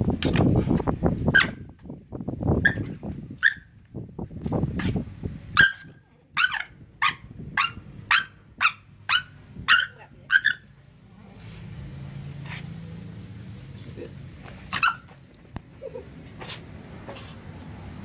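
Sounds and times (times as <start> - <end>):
young dog yapping: 5.6 - 10.6, 14.7 - 15.1.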